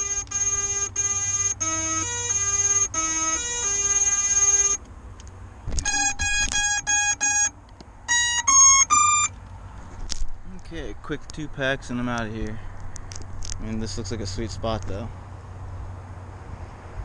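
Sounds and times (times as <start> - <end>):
drone motor start-up beeps: 0.0 - 4.8, 5.8 - 7.5, 8.1 - 9.3.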